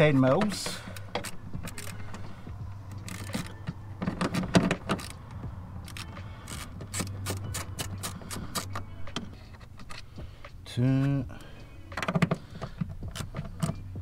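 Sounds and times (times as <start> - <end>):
socket wrench metallic clicks: 13.1 - 13.8.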